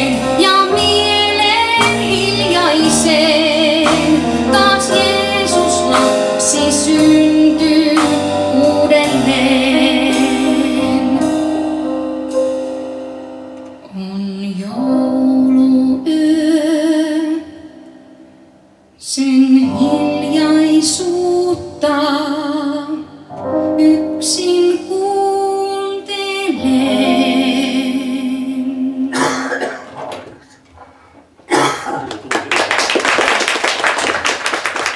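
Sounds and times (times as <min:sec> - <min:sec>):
woman singing with vibrato: 0:00.0 - 0:11.6, 0:13.8 - 0:17.8, 0:19.0 - 0:29.6
piano: 0:00.0 - 0:34.9
audience clapping: 0:32.0 - 0:34.9.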